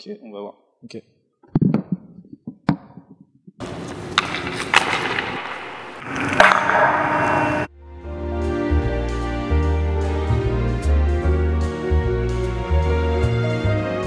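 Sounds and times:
ice skates scraping on ice: 3.6s - 7.7s
stick hitting puck: 3.6s - 7.7s.

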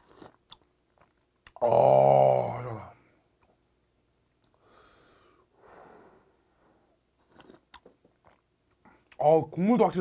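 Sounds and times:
small mouth clicks: 7.3s - 9.2s.

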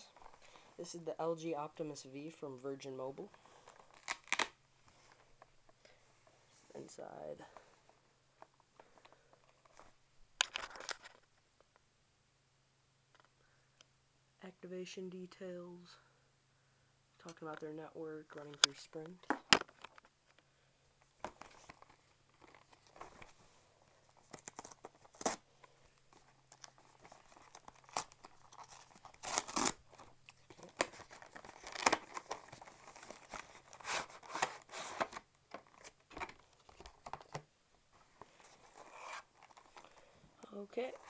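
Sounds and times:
cardboard and plastic rustling: 7.5s - 11.3s, 21.0s - 41.0s.

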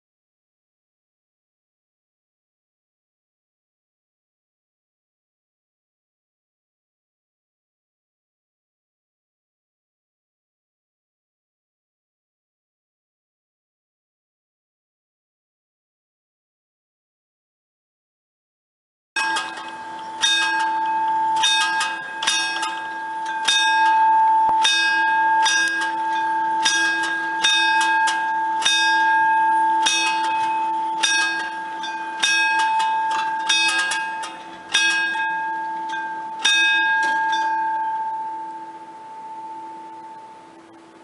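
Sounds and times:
level-crossing warning bell: 19.2s - 41.0s.

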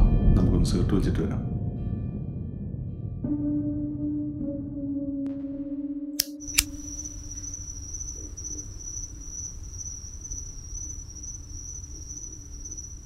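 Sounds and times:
sharp click: 6.2s - 8.7s
crickets chirring: 6.2s - 13.0s
low background rumble: 6.6s - 13.0s.

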